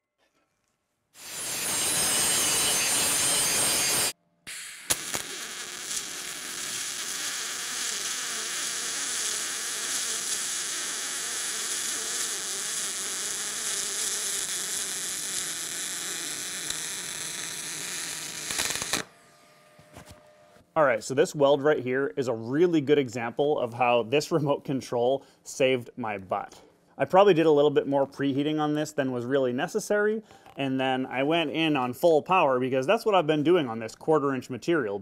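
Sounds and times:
welding arc hissing: 0:01.2 - 0:19.1.

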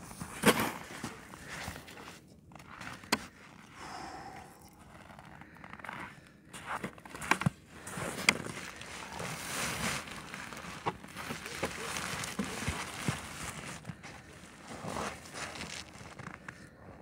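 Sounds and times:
footsteps crunching in snow: 0:04.8 - 0:16.7.

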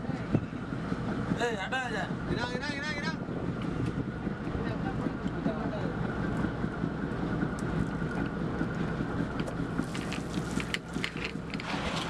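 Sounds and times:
boat engine running: 0:00.0 - 0:12.0
wind buffeting microphone: 0:00.0 - 0:12.0.

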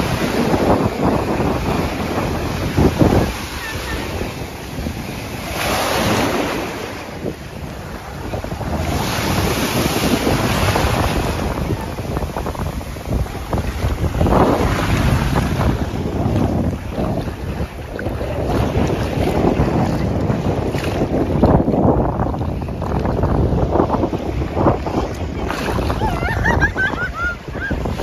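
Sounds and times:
sea waves breaking on shore: 0:00.0 - 0:28.0
wind buffeting microphone: 0:00.0 - 0:28.0.

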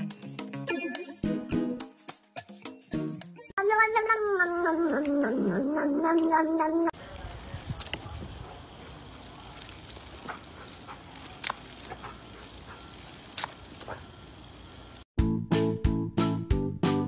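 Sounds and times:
sharp ticks: 0:09.1 - 0:14.8.

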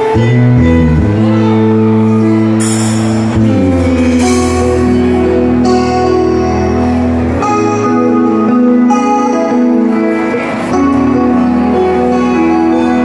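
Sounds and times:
live band playing: 0:00.0 - 0:13.0
cymbal crashes: 0:02.0 - 0:07.9.

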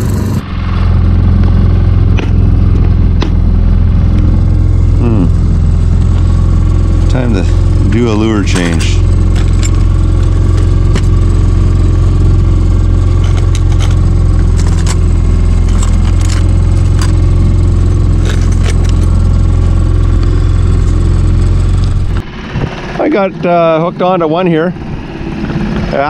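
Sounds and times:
outboard motor droning: 0:00.0 - 0:26.0.

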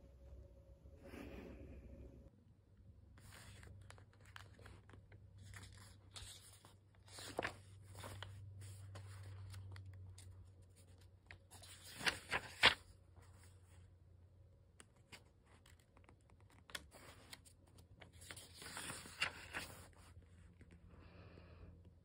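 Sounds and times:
faint low hum: 0:00.0 - 0:22.0
notebook pages rustling: 0:03.2 - 0:13.9, 0:14.8 - 0:20.8.

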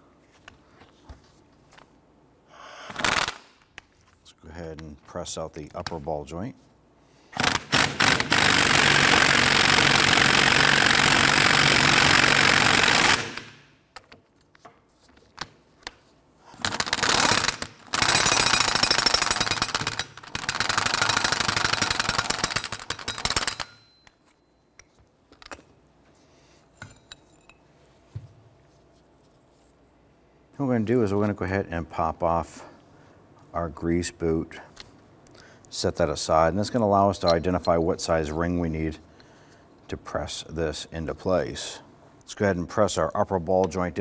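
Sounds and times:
impact wrench hammering: 0:07.4 - 0:13.6, 0:16.6 - 0:24.2.

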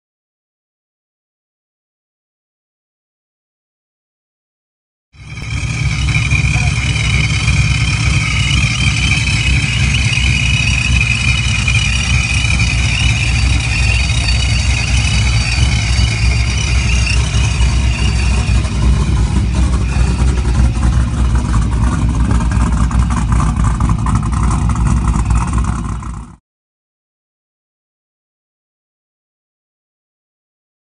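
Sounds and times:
engine idling rumble: 0:05.2 - 0:26.4
supercharger whine: 0:05.2 - 0:26.4.

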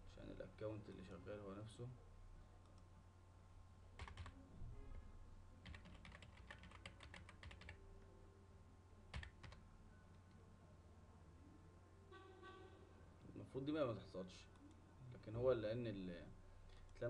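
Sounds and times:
computer keyboard typing: 0:04.0 - 0:04.4, 0:05.6 - 0:07.8, 0:09.1 - 0:10.3.

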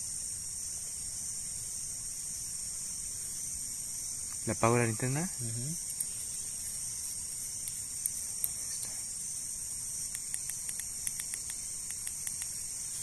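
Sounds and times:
night insects chorus: 0:00.0 - 0:13.0
faint clicks: 0:10.0 - 0:12.5.

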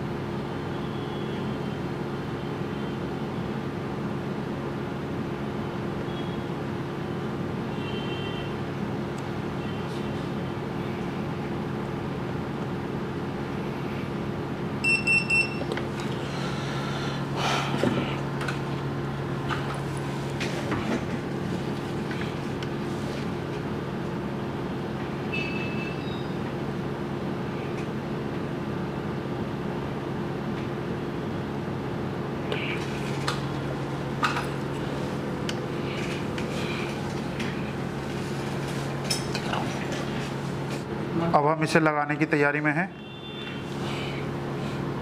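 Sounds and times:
electrical equipment hum: 0:00.0 - 0:45.0
high electronic beeps: 0:14.8 - 0:15.7.

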